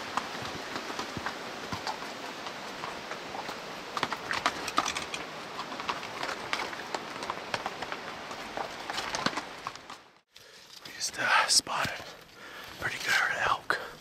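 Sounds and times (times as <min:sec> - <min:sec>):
creek rushing: 0:00.0 - 0:10.0
hooves clopping on stone: 0:00.0 - 0:11.0.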